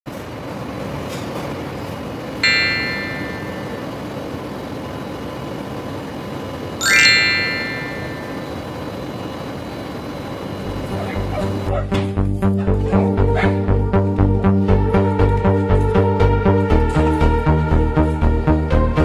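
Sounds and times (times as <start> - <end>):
steady machinery noise: 2.0 - 11.8
bright chime effects: 2.4 - 4.0, 6.8 - 8.8.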